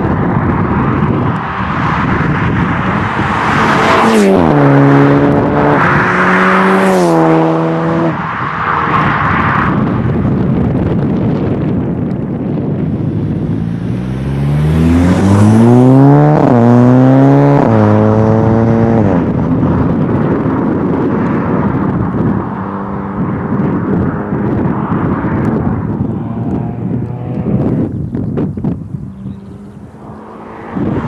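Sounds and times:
car engine accelerating past: 1.3 - 9.2, 13.6 - 19.4, 24.3 - 27.9.

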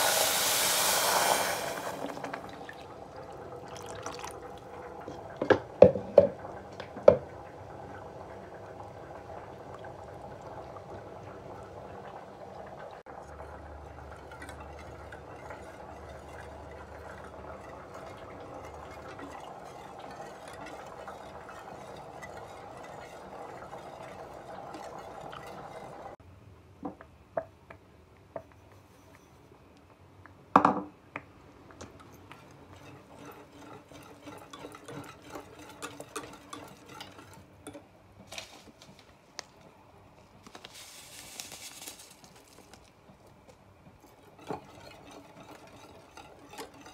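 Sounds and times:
whisk stirring in a metal pot: 13.0 - 26.2, 31.8 - 37.8, 43.8 - 46.9.

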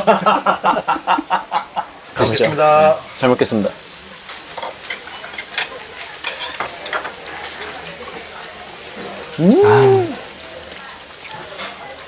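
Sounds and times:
meat sizzling on a grill: 0.0 - 12.0
person exclaiming: 9.4 - 10.2.

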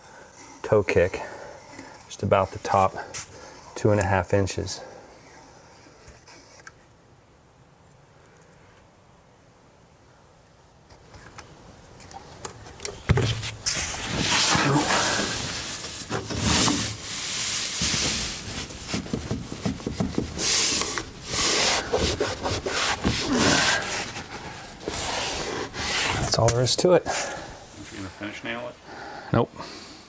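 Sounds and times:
strip scraping and rubbing: 5.2 - 6.8, 13.2 - 27.3.

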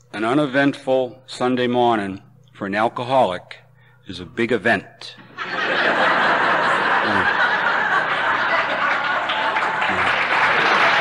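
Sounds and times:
audience laughing: 5.2 - 11.0
audience applauding: 6.6 - 11.0.

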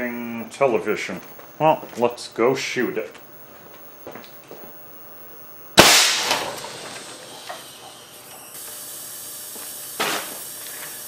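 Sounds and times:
high voltage hiss: 4.7 - 11.0
air cannon bang: 5.8 - 7.2, 10.0 - 10.4.

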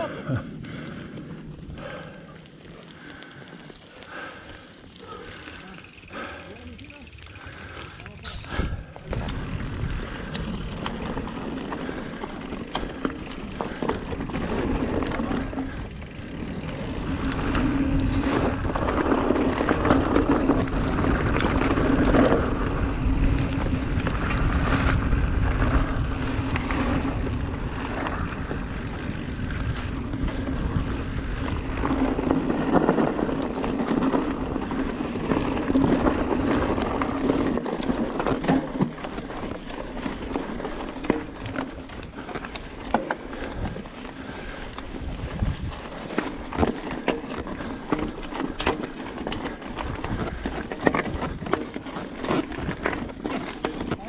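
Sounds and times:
bike tyres rolling on dirt: 0.0 - 54.0
bike knocking and rattling: 0.7 - 54.0
wind on microphone: 45.0 - 45.9.

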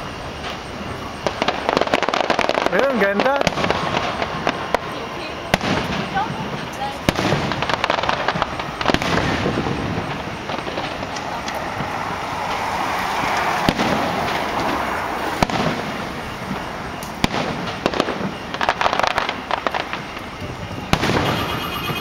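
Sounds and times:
steady wash of noise: 0.0 - 17.2
fireworks bursting: 0.0 - 22.0.

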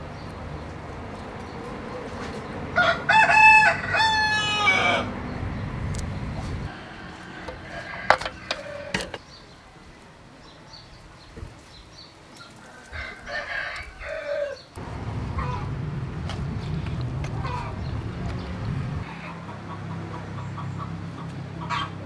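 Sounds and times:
chickens clucking: 1.1 - 9.7, 10.6 - 22.0
rooster crowing: 2.8 - 5.4, 6.6 - 9.2, 12.6 - 14.7, 15.3 - 15.8, 17.3 - 17.9
steady low hum: 5.0 - 9.2, 14.8 - 19.2.

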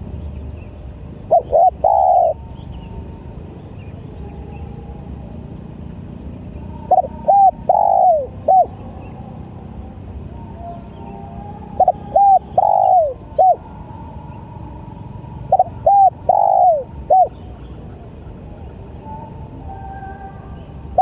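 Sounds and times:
dove cooing: 1.2 - 2.8, 6.4 - 9.8, 11.6 - 20.3.

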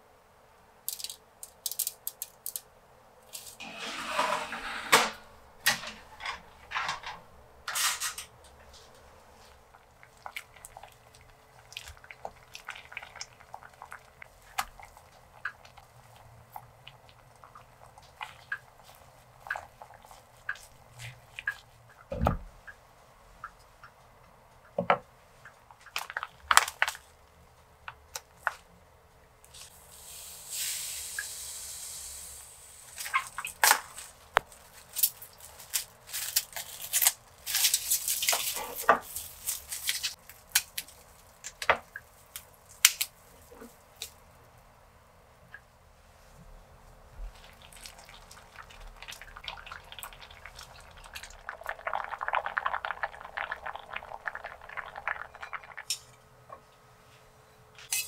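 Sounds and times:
steady hiss: 29.5 - 33.2.

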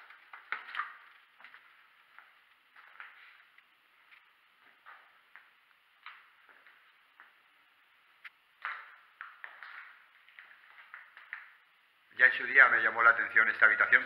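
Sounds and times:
footsteps crunching on gritty floor: 0.0 - 7.4.

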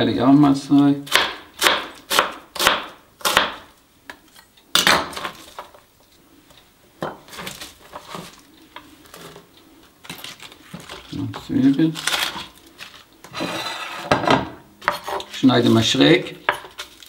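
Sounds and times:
knife chopping on cutting board: 1.1 - 3.6.

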